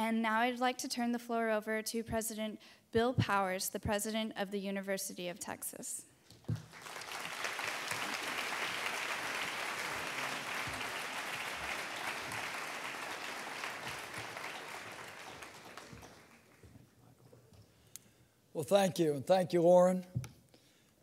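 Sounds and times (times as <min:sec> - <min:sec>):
audience applauding: 0:06.6 - 0:16.8.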